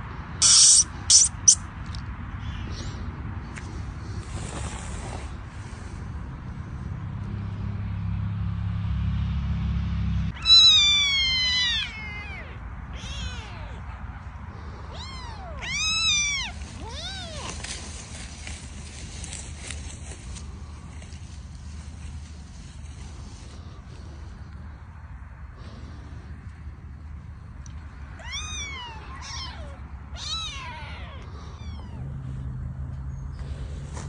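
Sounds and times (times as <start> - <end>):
kittens meowing: 0.4 - 1.6, 10.3 - 14.0, 14.6 - 17.8, 28.1 - 32.4.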